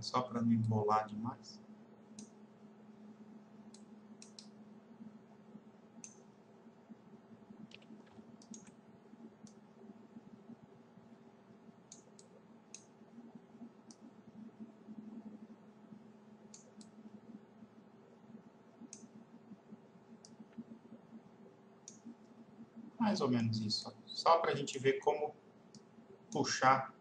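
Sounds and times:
low steady hum: 0.0 - 27.0
computer mouse clicks: 2.2 - 2.4, 3.7 - 4.5, 6.0 - 6.3, 7.6 - 8.8, 9.4 - 9.6, 11.9 - 15.5, 16.5 - 17.1, 18.8 - 21.1, 21.8 - 22.9, 25.7 - 26.4.

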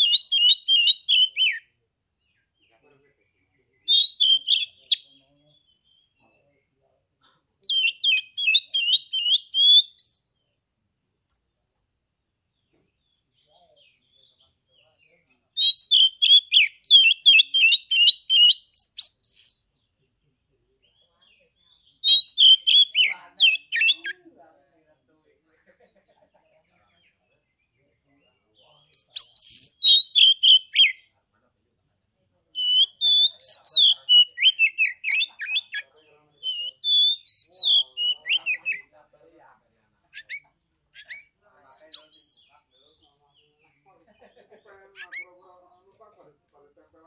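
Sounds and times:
magpie-robin singing whistled notes: 0.0 - 1.7, 3.8 - 6.2, 7.6 - 10.4, 15.6 - 19.7, 21.8 - 24.2, 28.8 - 31.0, 32.6 - 38.9, 41.0 - 42.6.

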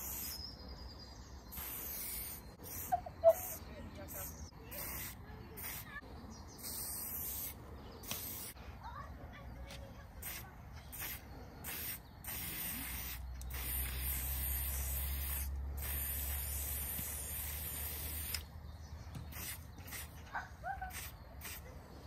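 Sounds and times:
spray-paint can hissing: 0.0 - 0.4, 1.5 - 6.0, 6.6 - 8.6, 10.2 - 18.5, 19.3 - 20.2, 20.9 - 21.7.

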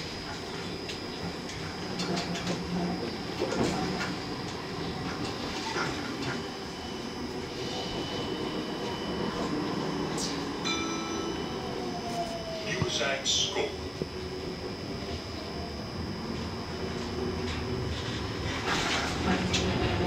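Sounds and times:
high steady whine: 0.0 - 20.0
tram wheels rumbling on rails: 0.0 - 20.0.

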